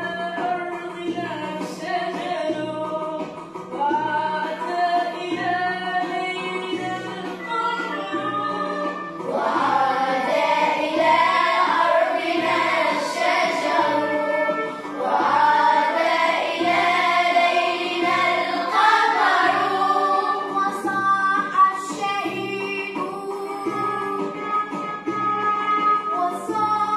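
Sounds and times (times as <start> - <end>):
instrumental backing with beat: 0.0 - 26.9
children's choir singing: 8.8 - 24.2.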